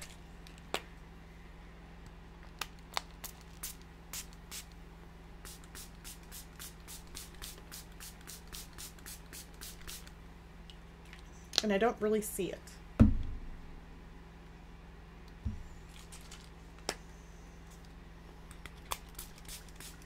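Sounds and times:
spray bottle spraying: 0:05.4 - 0:10.1, 0:18.9 - 0:20.0.

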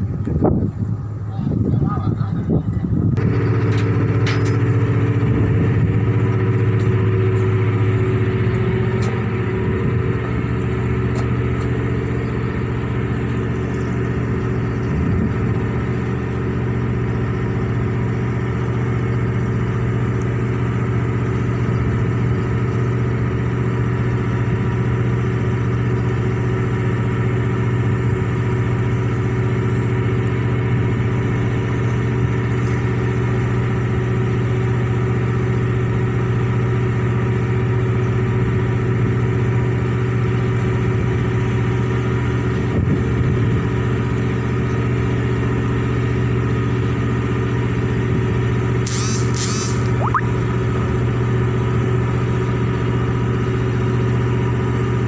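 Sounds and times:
diesel engine running steadily: 0:00.0 - 0:55.0.

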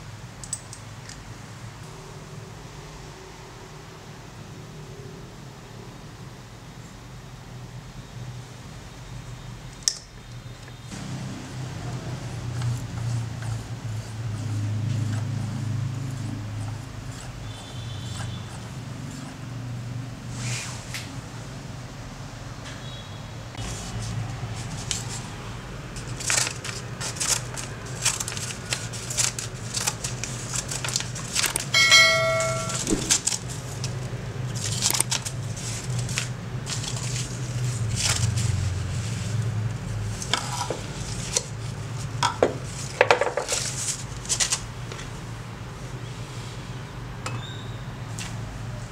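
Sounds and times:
scissors snipping paper: 0:26.0 - 0:31.7
metallic ring of blades: 0:31.8 - 0:33.3.

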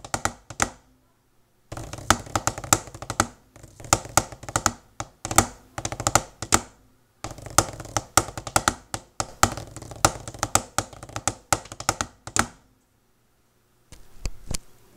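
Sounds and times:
drumsticks on practice pad: 0:00.0 - 0:00.8, 0:01.7 - 0:12.6.

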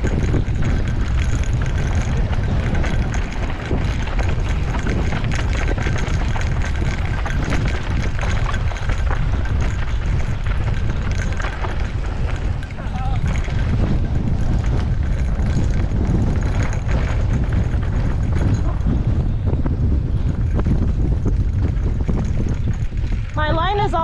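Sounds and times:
bike tyres crunching over dirt: 0:00.0 - 0:24.0
wind buffeting microphone: 0:00.0 - 0:24.0.

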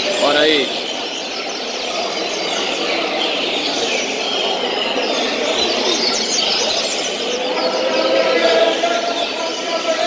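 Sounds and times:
birds chirping in chorus: 0:00.0 - 0:10.0.

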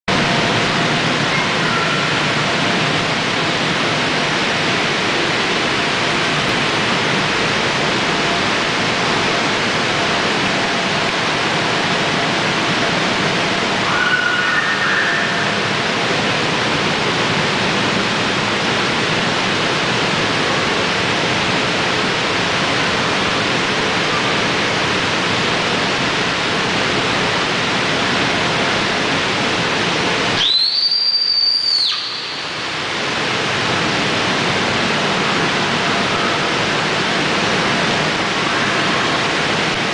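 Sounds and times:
high whistle-like tone: 0:30.4 - 0:32.4.

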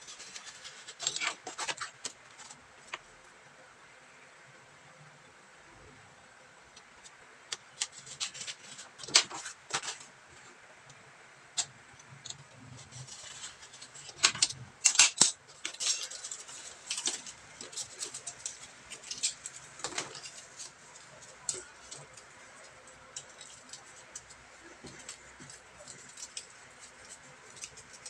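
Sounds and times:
cardboard pieces rustling: 0:00.1 - 0:03.0, 0:07.8 - 0:10.1, 0:12.7 - 0:28.0.

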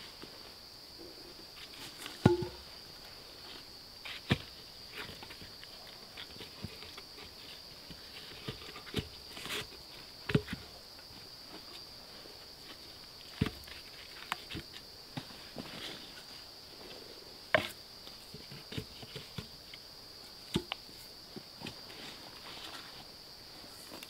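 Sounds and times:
wooden logs knocking: 0:02.2 - 0:02.7
scuffing and rustling: 0:06.2 - 0:19.4, 0:21.3 - 0:24.0.

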